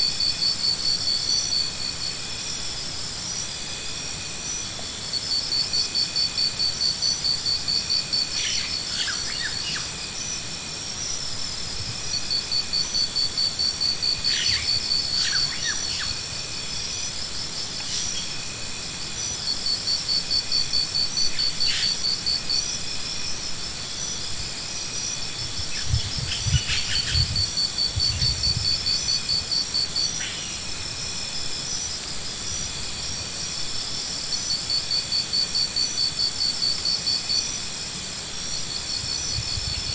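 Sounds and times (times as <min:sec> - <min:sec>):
steady high insect drone: 0:00.0 - 0:39.9.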